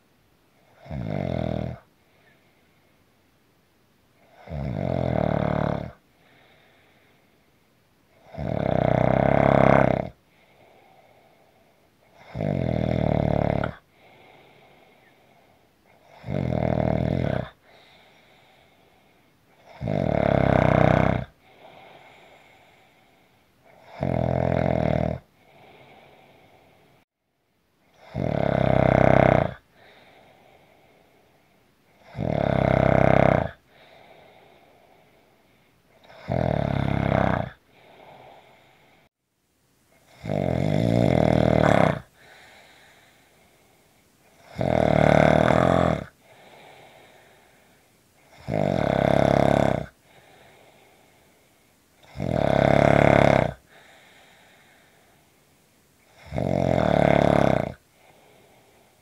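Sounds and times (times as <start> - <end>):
person snoring: 0.7 - 1.9, 4.2 - 7.0, 8.2 - 26.8, 27.9 - 31.2, 32.0 - 35.2, 36.0 - 39.1, 40.1 - 51.4, 52.0 - 55.2, 56.1 - 59.0.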